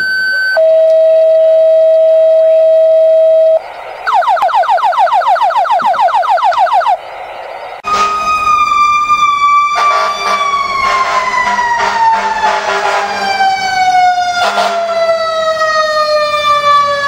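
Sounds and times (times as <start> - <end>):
radio alert tones: 0.0 - 8.6.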